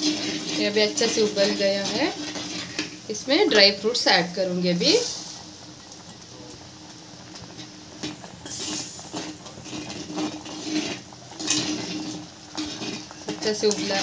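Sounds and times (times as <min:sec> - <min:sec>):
metal spoon scraping a pot: 0:00.0 - 0:03.8, 0:07.6 - 0:14.0.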